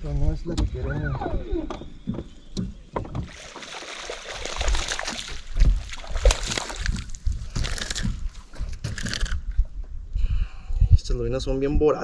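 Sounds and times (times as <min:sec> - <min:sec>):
knocks and low thumps: 0:00.5 - 0:03.4
water splashing and sloshing: 0:00.6 - 0:09.9.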